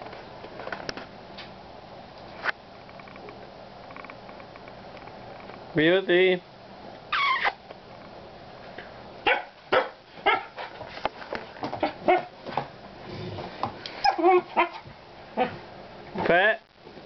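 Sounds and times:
puppy barking and yipping: 9.3s - 10.7s, 14.0s - 15.6s.

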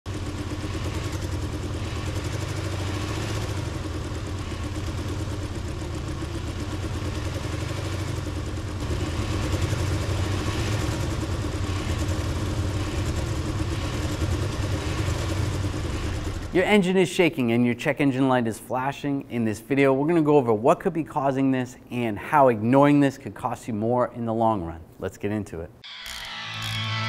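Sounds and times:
car engine idling rough: 0.1s - 16.6s.

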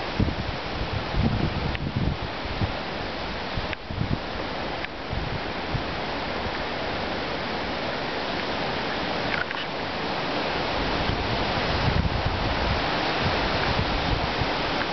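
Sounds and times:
storm wind roaring through trees: 0.0s - 14.9s
wind gusts buffeting microphone: 0.0s - 14.9s.

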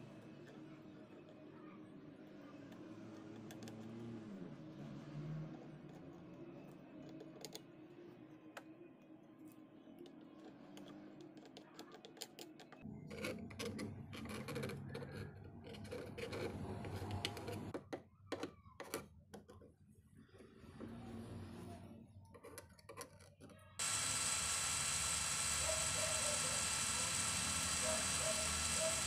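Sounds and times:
screwdriver scraping metal: 13.1s - 17.7s.

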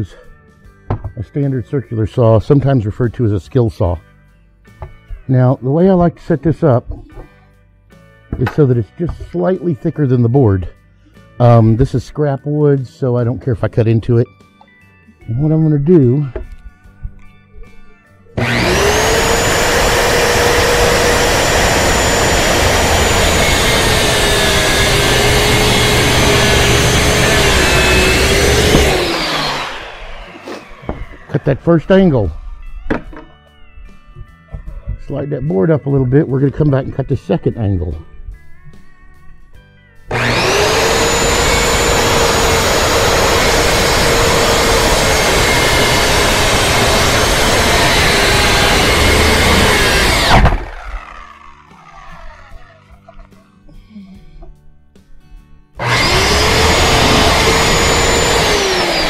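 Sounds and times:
circular saw whining: 18.3s - 32.4s, 40.1s - 53.0s, 55.8s - 59.0s
saw cutting wood: 18.4s - 31.6s, 40.1s - 53.2s, 55.8s - 59.0s.

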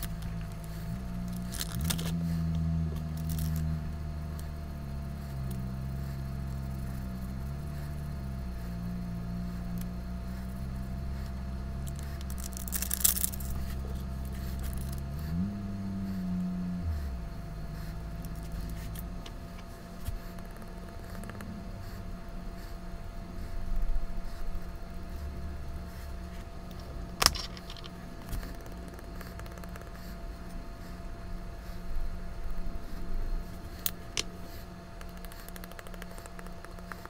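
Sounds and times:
low steady hum: 0.0s - 37.0s.

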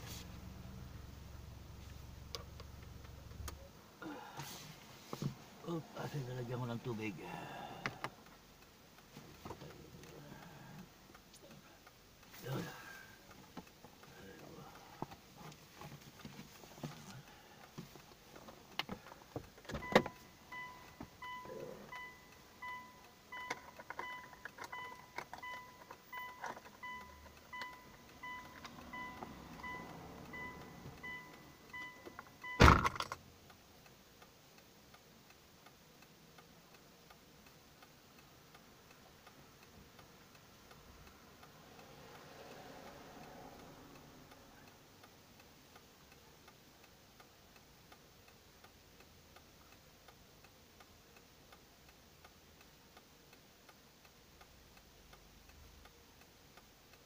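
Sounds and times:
car door opening click: 19.6s - 21.4s, 31.8s - 33.2s
door-open warning chime beeping: 19.8s - 32.9s
car door thudding shut: 32.6s - 33.1s.

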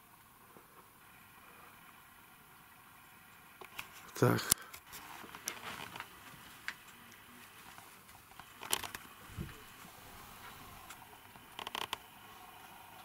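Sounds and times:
plastic bags rustling: 5.0s - 6.8s.

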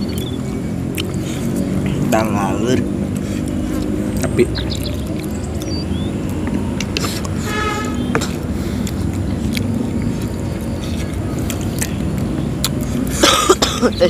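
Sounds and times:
chewing: 0.0s - 13.2s
short tonal toot: 7.4s - 8.1s.

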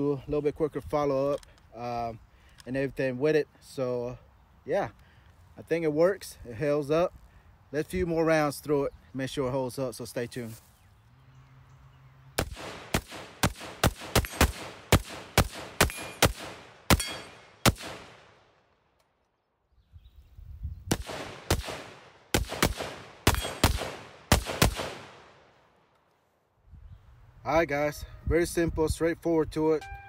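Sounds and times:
rifle firing rapid shots: 12.4s - 18.4s, 20.9s - 25.4s.

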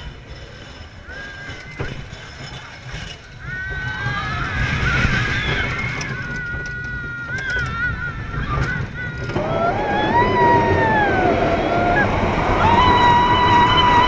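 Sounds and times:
roller coaster rumbling: 0.0s - 14.0s
riders screaming: 3.4s - 14.0s.

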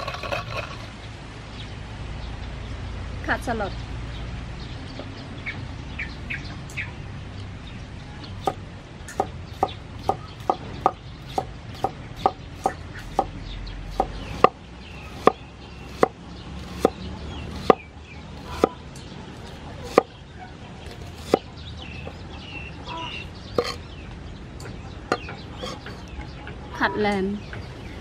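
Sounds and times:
cleaver chopping on wooden board: 13.9s - 17.8s, 18.4s - 18.8s, 19.8s - 20.1s, 20.9s - 21.5s.

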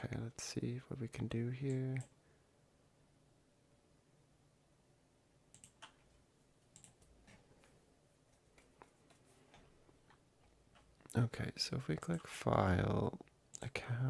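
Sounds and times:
faint computer mouse clicks: 5.5s - 6.0s.

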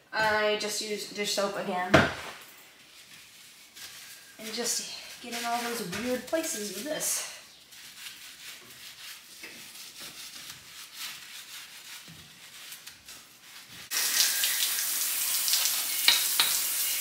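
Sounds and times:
brush scrubbing glass jar: 2.9s - 13.9s
hose spraying water: 4.4s - 7.2s, 13.8s - 17.0s.

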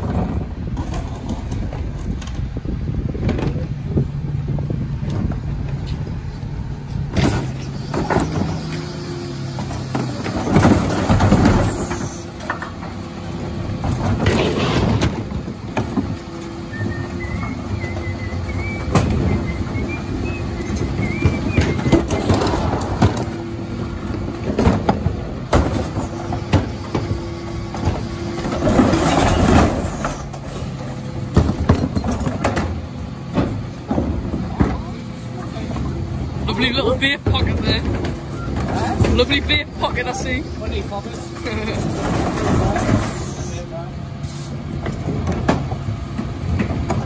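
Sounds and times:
hydraulic and engine hum: 0.0s - 47.0s
falling recycling: 7.2s - 43.6s
plastic bins knocking and clattering: 9.9s - 11.9s, 18.6s - 19.9s, 20.6s - 23.4s, 24.0s - 30.2s, 31.3s - 35.0s, 36.6s - 40.1s.

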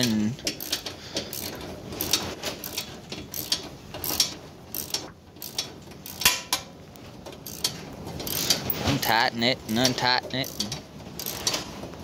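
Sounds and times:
ratchet wrench clicking: 0.0s - 6.6s, 7.4s - 8.7s, 10.4s - 11.6s.

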